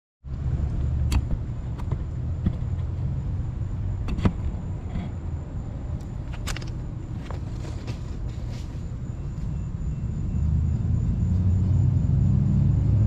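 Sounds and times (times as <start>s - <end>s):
steady low rumble: 0.2s - 13.0s.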